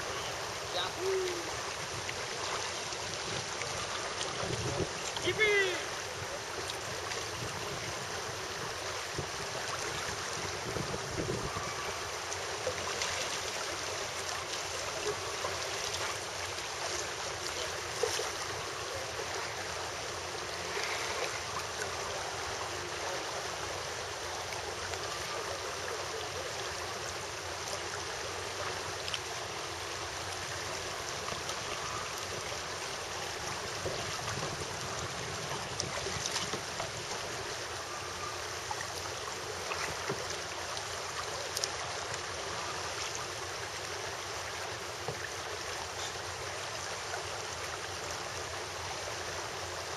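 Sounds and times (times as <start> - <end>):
river current rushing: 0.0 - 49.9.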